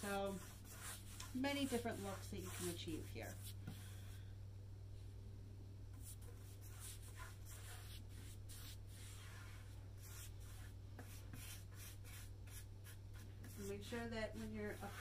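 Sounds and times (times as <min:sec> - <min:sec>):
paintbrush swishes: 0:00.0 - 0:04.0
steady low hum: 0:00.0 - 0:15.0.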